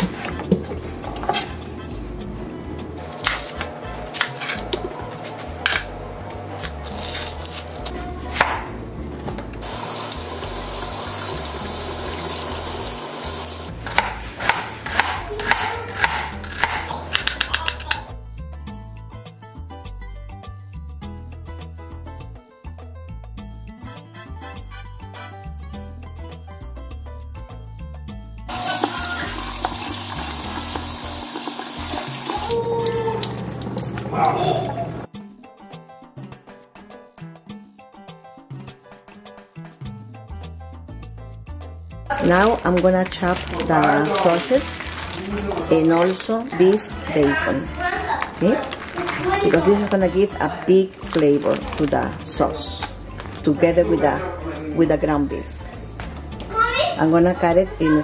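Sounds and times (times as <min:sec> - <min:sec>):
tap water running into sink: 0:09.6 - 0:13.7, 0:28.5 - 0:34.1
knife chopping on plastic board: 0:13.8 - 0:17.8.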